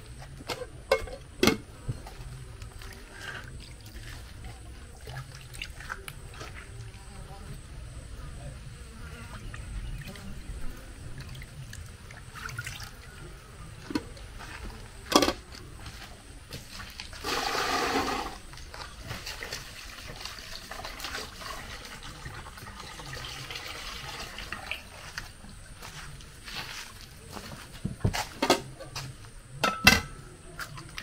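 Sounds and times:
water splashing and pouring: 2.7 - 7.0, 11.0 - 13.1, 16.7 - 25.2.

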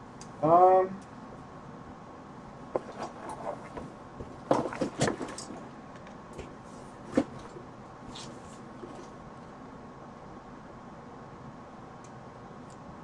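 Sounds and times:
wires rustling in a cardboard box: 2.7 - 9.2.

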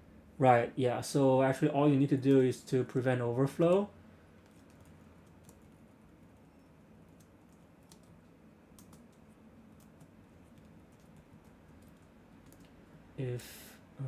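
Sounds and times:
faint keyboard typing: 2.0 - 2.6, 3.6 - 12.9.

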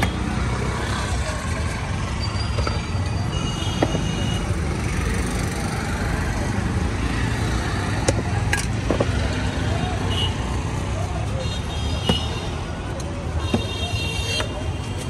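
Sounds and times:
street traffic rumble: 0.0 - 15.0.

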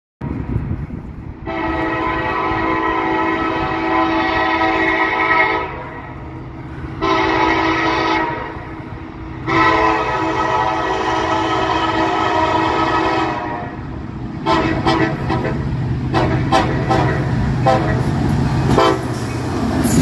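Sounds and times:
locomotive air horn blasts: 1.4 - 6.2, 7.0 - 8.7, 9.4 - 13.8, 14.4 - 18.1, 18.7 - 19.2.

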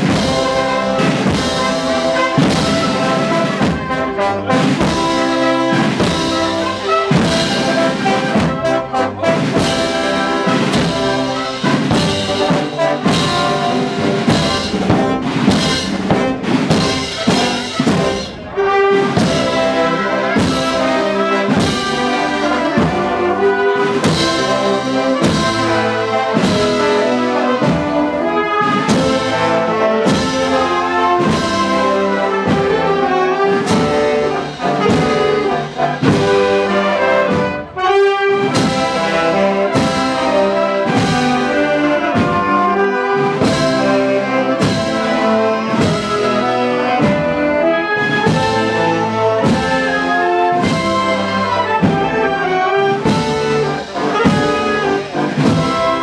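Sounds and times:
steady drum beat: 0.0 - 56.0
wind band playing a march: 0.0 - 56.0.

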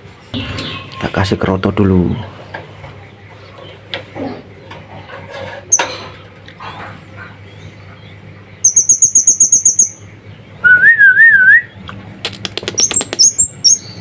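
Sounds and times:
songbird trilling and warbling: 6.7 - 10.6, 12.6 - 14.0.

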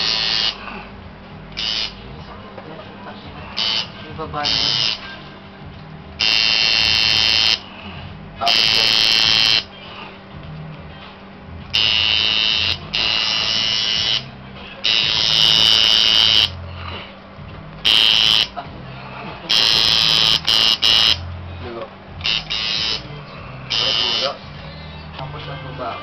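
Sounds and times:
tattoo machine buzzing: 0.0 - 0.6, 1.6 - 2.0, 3.6 - 5.0, 6.2 - 7.6, 8.4 - 9.7, 11.7 - 16.6, 17.8 - 18.6, 19.5 - 21.3, 22.2 - 23.1, 23.7 - 24.4.

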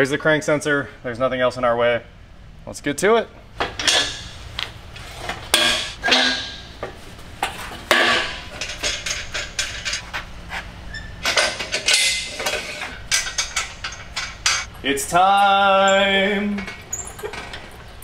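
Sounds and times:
metal clanks and chain rattles: 5.5 - 6.7, 7.9 - 10.2, 10.9 - 18.0.

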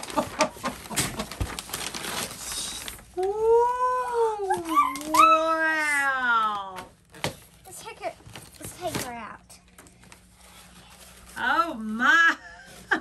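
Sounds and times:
tissue paper crinkling: 0.0 - 3.4, 10.0 - 12.1.

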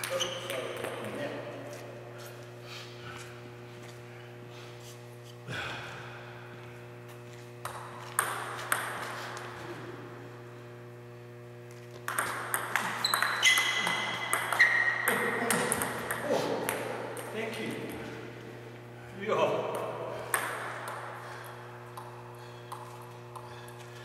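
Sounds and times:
table tennis ball clicking: 12.1 - 17.3.

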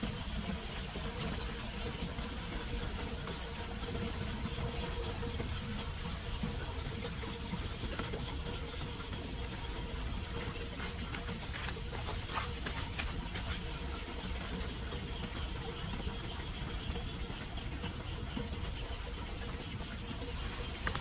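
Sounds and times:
rainwater running down a drain: 0.0 - 21.0.

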